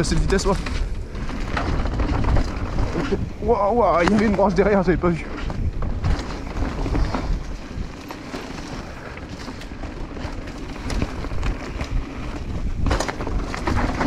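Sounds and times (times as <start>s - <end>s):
bike knocking and rattling: 0.0s - 14.0s
tyres running over leaves and dirt: 0.0s - 14.0s
wind buffeting microphone: 0.0s - 14.0s.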